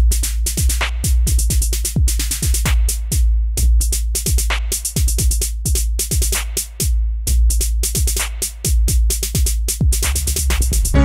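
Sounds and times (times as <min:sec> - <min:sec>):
drum machine beat: 0:00.0 - 0:11.0
deep sustained bass: 0:10.8 - 0:11.0.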